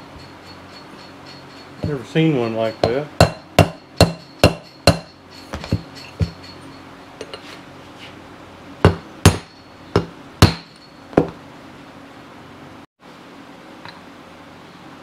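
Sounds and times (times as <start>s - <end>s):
hammer tapping metal bearing: 0.2s - 6.6s, 8.9s - 11.4s.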